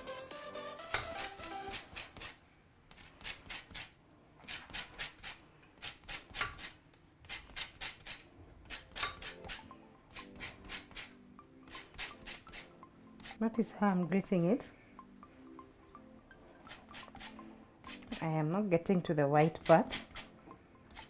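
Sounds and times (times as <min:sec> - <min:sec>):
lemon rind grated on metal grater: 0:03.0 - 0:13.4, 0:19.4 - 0:21.0.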